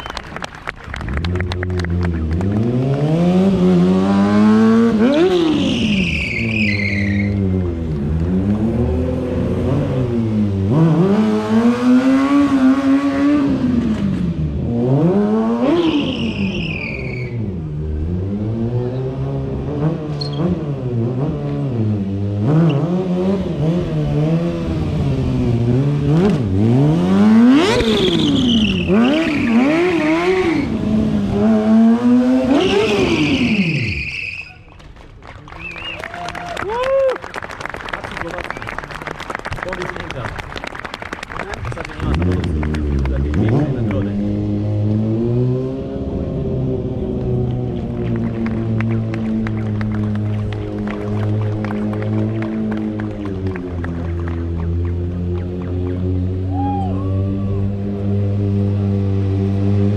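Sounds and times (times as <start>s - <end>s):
motorcycle engine revving: 0.9s - 34.0s, 41.6s - 59.9s
tyre squeal: 5.1s - 7.6s, 15.8s - 17.5s, 20.2s - 20.5s, 27.8s - 30.8s, 32.6s - 34.8s.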